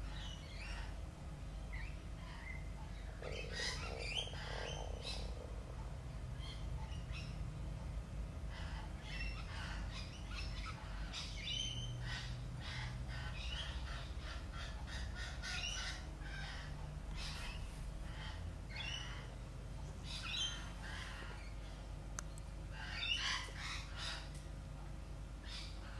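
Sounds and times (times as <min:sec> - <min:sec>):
steady low hum: 0:00.0 - 0:25.9
parrots squawking and chirping: 0:01.7 - 0:05.8, 0:08.5 - 0:19.4, 0:20.0 - 0:21.8, 0:22.8 - 0:24.4.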